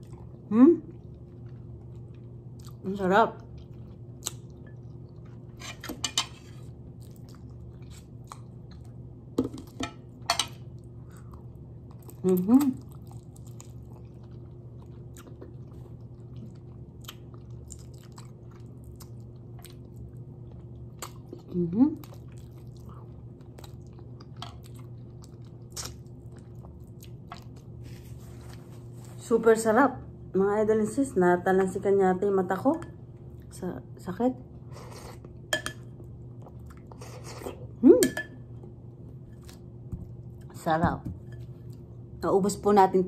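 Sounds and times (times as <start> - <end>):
person chewing wetly: 0.0 - 2.8, 3.4 - 5.5, 6.6 - 9.1, 10.6 - 27.8, 36.0 - 37.6
faint steady hum: 0.0 - 43.0.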